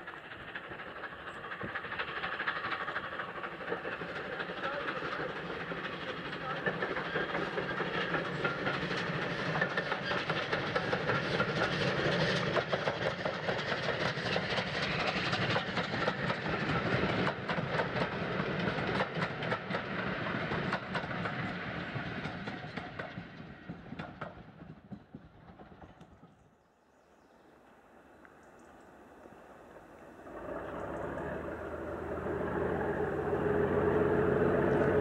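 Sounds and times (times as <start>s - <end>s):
coaches clattering over rail joints: 0.0s - 24.4s
steam locomotive exhaust beating: 0.0s - 25.7s, 29.8s - 35.0s.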